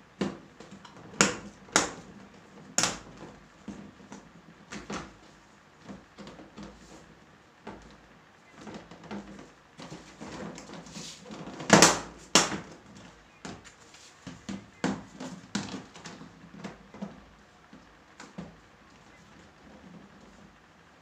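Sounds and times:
plastic panels knocking: 0.2 - 7.0, 7.6 - 20.3.

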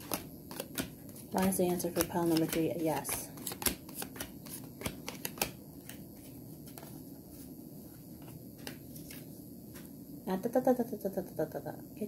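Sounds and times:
cards being shuffled: 0.0 - 7.5, 8.2 - 9.8.

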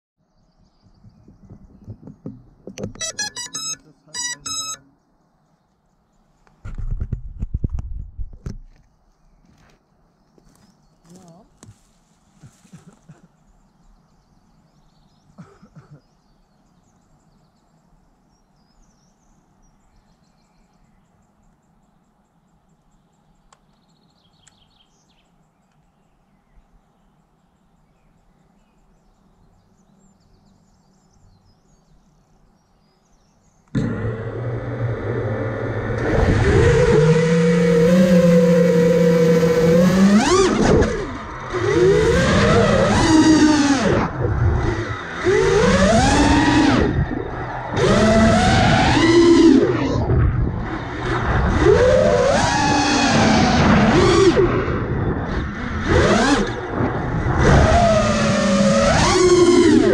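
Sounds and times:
quadcopter motors whining: 2.8 - 4.8, 33.7 - 59.9
small chirps: 2.9 - 5.0.

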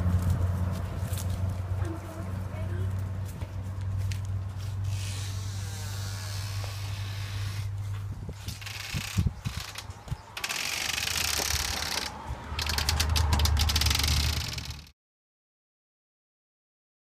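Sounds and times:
steady outdoor hum: 0.0 - 14.9
doors clicking and knocking: 8.6 - 14.8.

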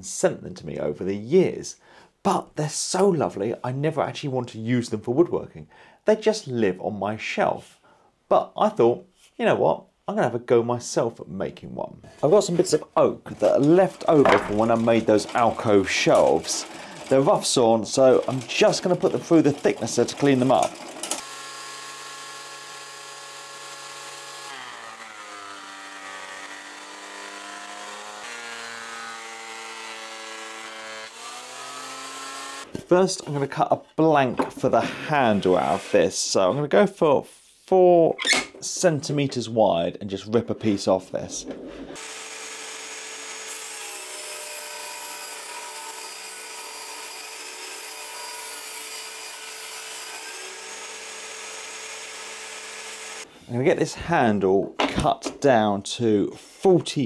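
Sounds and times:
table saw cutting wood: 12.5 - 33.4, 34.5 - 36.4, 41.6 - 53.3.

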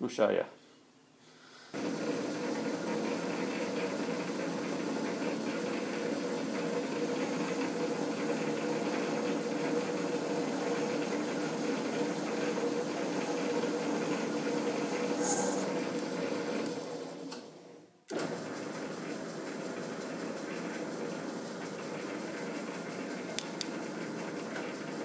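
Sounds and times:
metal lathe humming: 5.8 - 15.9.

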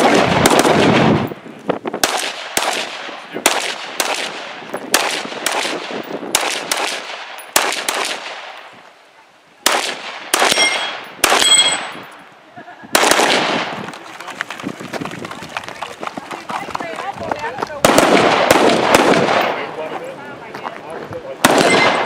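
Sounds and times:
gunshots: 0.0 - 1.4, 2.0 - 8.7, 9.6 - 12.1, 12.9 - 14.0, 17.8 - 19.8, 21.4 - 22.0
steel target ringing: 10.5 - 12.0.

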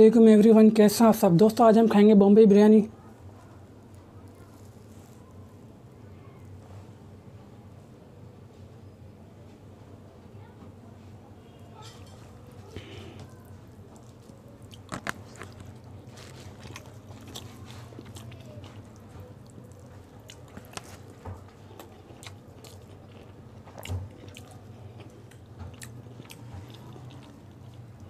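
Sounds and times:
fingers mixing rice: 12.8 - 23.3.

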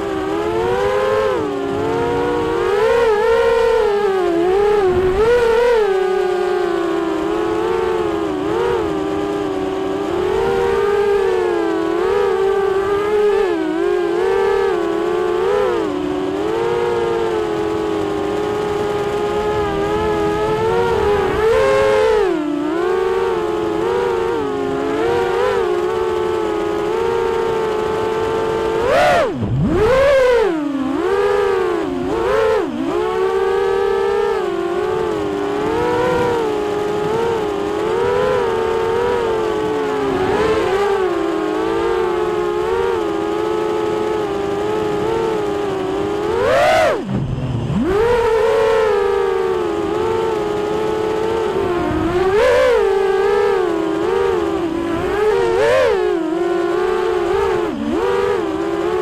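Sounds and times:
quadcopter propeller whine: 0.0 - 59.0.

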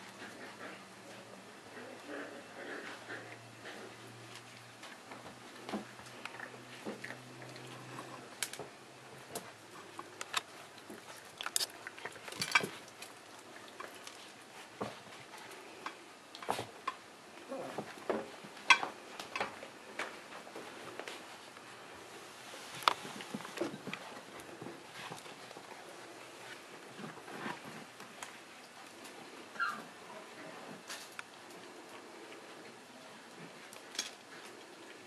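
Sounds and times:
puppies crunching dry kibble: 2.9 - 17.0, 22.7 - 29.7.

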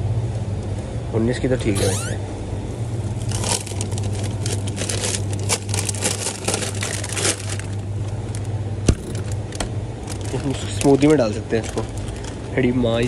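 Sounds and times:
steady low hum: 0.0 - 10.7
plastic bags crinkling: 3.2 - 13.0.

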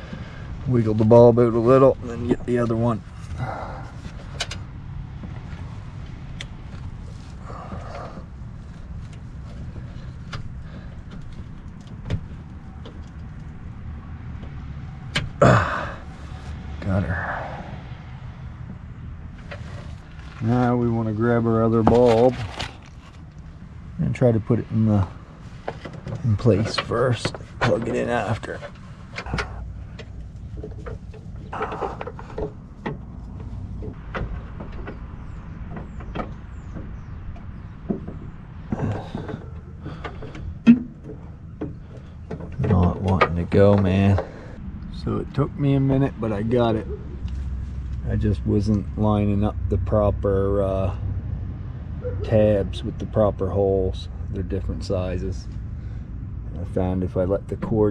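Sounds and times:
steady low rumble: 22.4 - 57.9.

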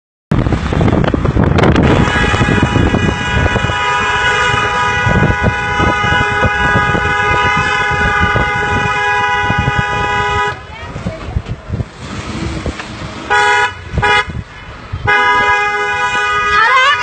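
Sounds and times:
moving car rumble: 0.3 - 17.0
wind on microphone: 0.3 - 17.0
car horn long blast: 1.7 - 10.6, 13.3 - 14.4, 15.0 - 17.0.

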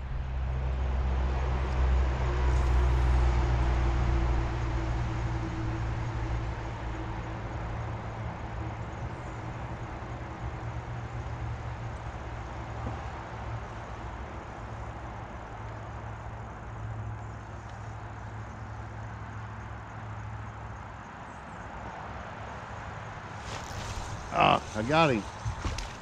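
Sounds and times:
wind rumble on microphone: 23.3 - 26.0.

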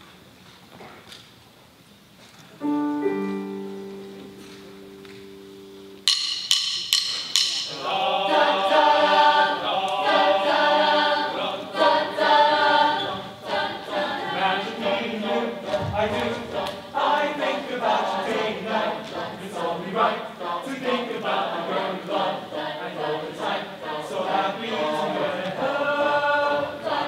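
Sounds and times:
held chord of steady tones: 2.6 - 15.7, 16.5 - 27.0
percussion: 4.2 - 10.7
choir singing loudly: 7.6 - 27.0.

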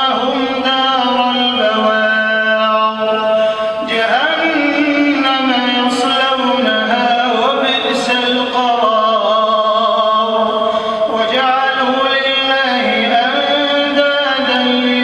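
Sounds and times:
man chanting over microphone: 0.0 - 15.0.

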